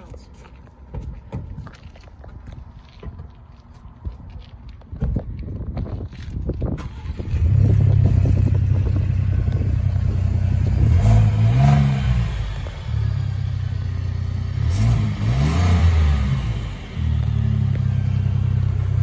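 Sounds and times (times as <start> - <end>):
engine starting and idling: 6.8 - 9.0.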